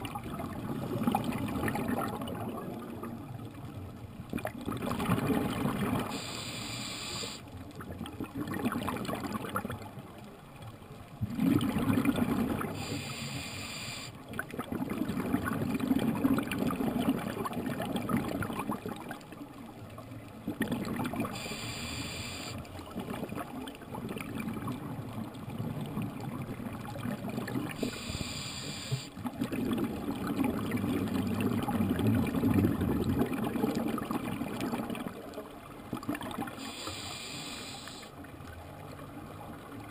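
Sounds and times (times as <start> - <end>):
regulator hissing inhalations: 6.1 - 7.4, 12.8 - 14.1, 21.4 - 22.6, 27.8 - 29.1, 36.6 - 38.1
bubbling exhaled air: 11.2 - 18.4.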